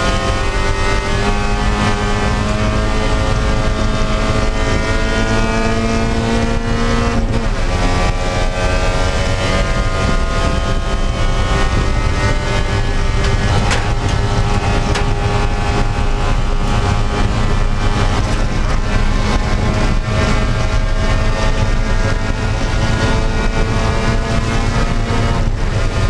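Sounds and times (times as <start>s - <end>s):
racing car engine revving: 0.0s - 26.0s.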